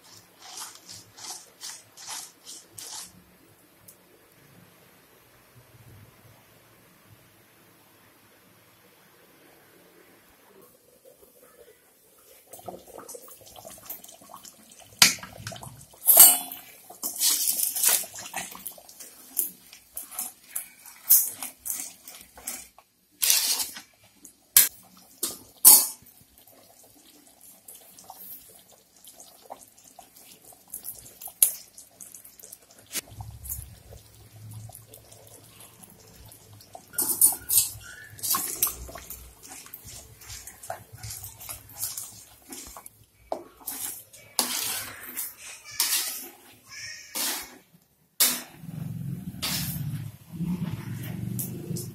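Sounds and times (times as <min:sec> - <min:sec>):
gravy sloshing while stirred: 0:00.0 - 0:03.3, 0:12.2 - 0:47.7
metal clinking on pan: 0:16.0 - 0:17.4.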